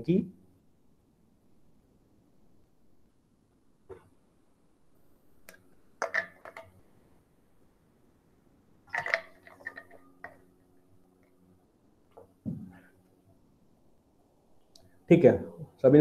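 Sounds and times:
faint low hum: 0:00.0 - 0:16.0
clicking and knocking: 0:06.0 - 0:06.8, 0:08.9 - 0:10.4.

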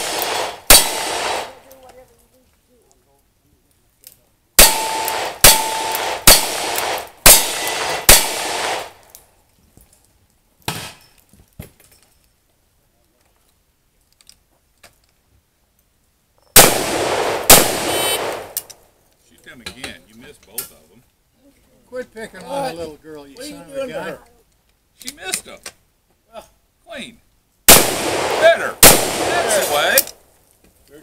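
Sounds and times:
shotgun shots with long echo: 0:00.0 - 0:01.6, 0:04.6 - 0:09.0, 0:16.6 - 0:18.7, 0:27.7 - 0:30.1.

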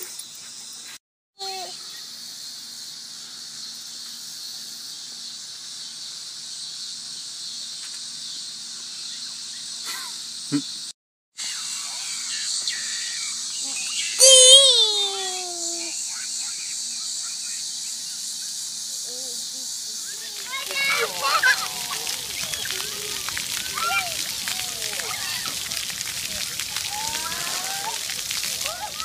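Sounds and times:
insects chirring: 0:00.0 - 0:29.0
child's voice: 0:01.4 - 0:01.8, 0:13.6 - 0:16.0, 0:19.0 - 0:21.9
child squealing: 0:14.2 - 0:15.9, 0:26.9 - 0:28.0.

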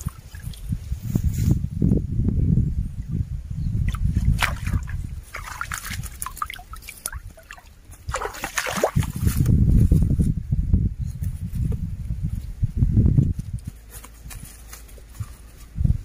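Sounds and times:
water splashing and dripping: 0:00.0 - 0:00.8, 0:03.8 - 0:09.4
net sloshing through water: 0:03.8 - 0:09.4.

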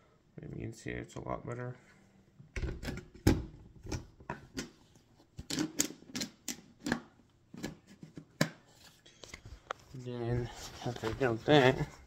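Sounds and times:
plastic parts clicking and knocking: 0:02.6 - 0:04.8, 0:05.4 - 0:08.6.

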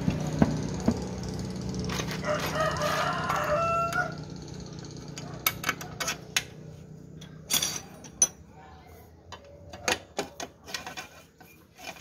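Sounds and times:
rooster crowing: 0:02.1 - 0:04.4.

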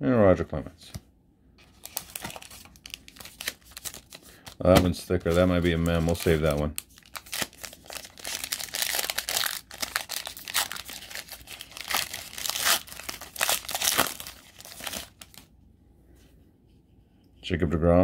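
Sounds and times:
foil wrapper crinkling and tearing: 0:01.7 - 0:15.5.

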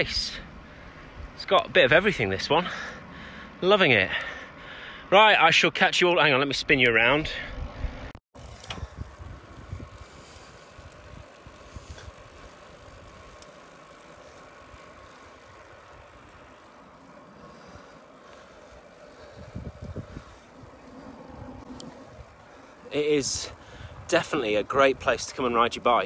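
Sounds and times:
road noise hiss: 0:00.0 - 0:26.0
wind buffeting microphone: 0:07.2 - 0:13.2, 0:18.7 - 0:25.8.

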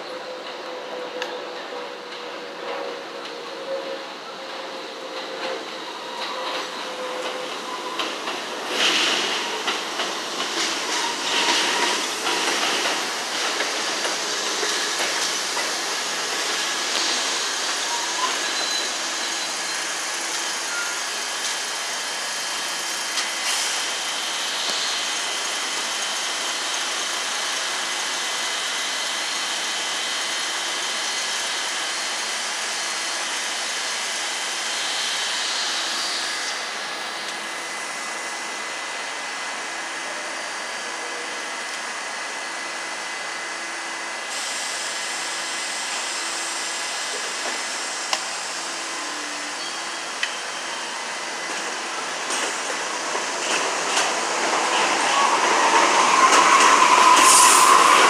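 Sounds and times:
train wheels squealing: 0:00.0 - 0:21.8, 0:48.7 - 0:52.7, 0:53.5 - 0:58.0
train humming: 0:00.0 - 0:29.2, 0:45.1 - 0:58.0
train wheels clacking over rail joints: 0:04.5 - 0:19.3, 0:51.5 - 0:58.0
thin high whine: 0:54.0 - 0:58.0.

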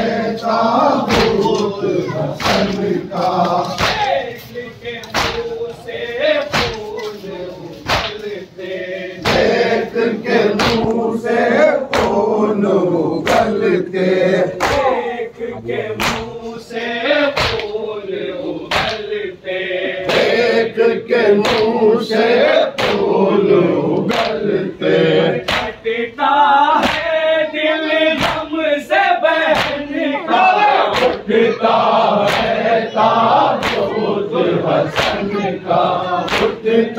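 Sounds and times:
men chanting in unison: 0:00.0 - 0:36.9
chest-beating slaps: 0:00.9 - 0:05.8, 0:06.4 - 0:08.4, 0:09.2 - 0:09.8, 0:10.4 - 0:11.0, 0:11.9 - 0:12.2, 0:13.2 - 0:13.6, 0:14.5 - 0:15.0, 0:16.0 - 0:16.4, 0:17.3 - 0:17.8, 0:18.7 - 0:19.2, 0:22.8 - 0:23.1, 0:24.0 - 0:24.4, 0:25.4 - 0:25.8, 0:26.8 - 0:27.1, 0:28.2 - 0:28.5, 0:29.5 - 0:29.9, 0:30.8 - 0:31.3, 0:32.2 - 0:32.7, 0:33.6 - 0:34.0, 0:34.9 - 0:35.4, 0:36.2 - 0:36.6.

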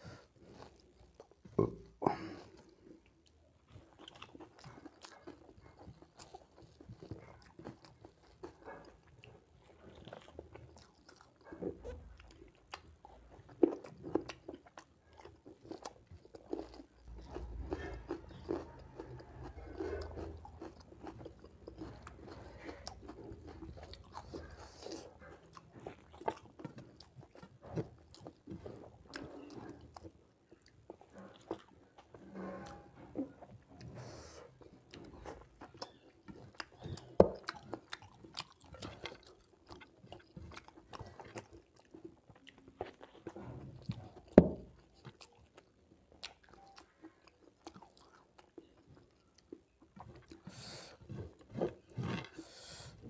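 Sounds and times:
close chewing mouth sounds: 0:00.0 - 0:53.0.

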